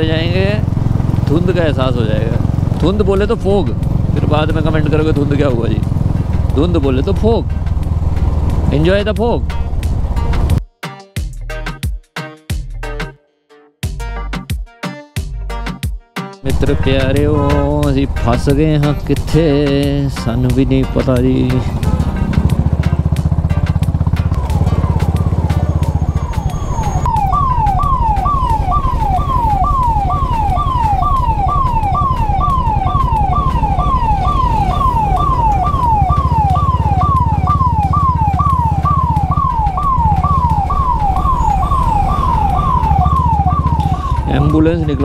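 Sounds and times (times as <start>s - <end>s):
ambulance siren wailing: 0.0s - 5.8s, 16.5s - 20.6s, 24.1s - 45.0s
motorcycle engine running: 0.0s - 10.6s, 16.5s - 45.0s.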